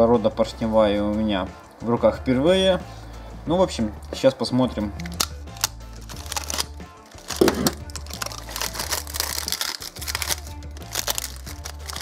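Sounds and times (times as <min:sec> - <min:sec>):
packaging crackling and crinkling: 0:05.0 - 0:12.0.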